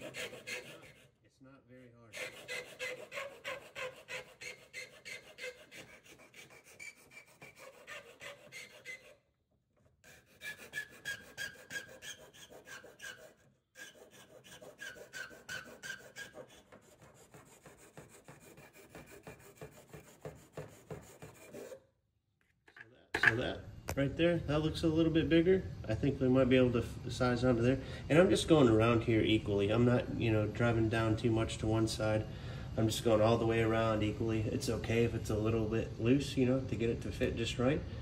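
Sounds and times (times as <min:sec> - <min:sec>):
hand file rasping in metal hole: 0:00.0 - 0:01.2, 0:02.1 - 0:09.2, 0:10.0 - 0:21.8.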